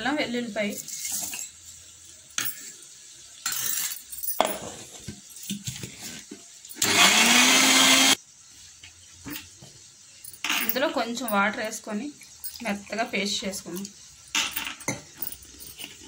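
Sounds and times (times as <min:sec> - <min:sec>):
steel jar knocking and clinking: 0:03.5 - 0:05.1
mixer grinder motor running: 0:06.8 - 0:08.2.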